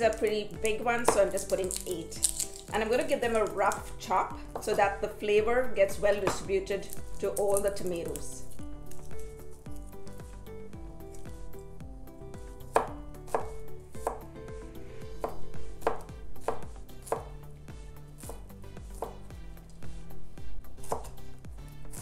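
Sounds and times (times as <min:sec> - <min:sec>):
soft background music: 0:00.0 - 0:22.0
knife chopping on cutting board: 0:00.6 - 0:02.7, 0:06.1 - 0:08.2, 0:12.4 - 0:14.3, 0:15.0 - 0:17.4, 0:18.2 - 0:19.3, 0:20.8 - 0:21.3.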